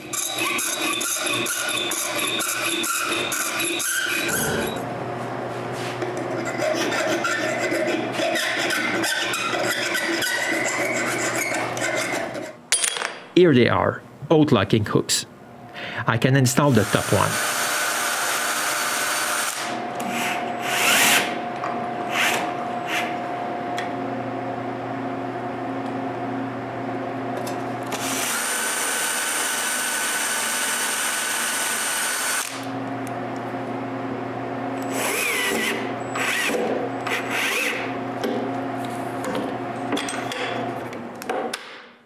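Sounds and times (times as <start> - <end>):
power drill running: 16.7 - 21.4, 27.9 - 32.7, 34.8 - 37.9.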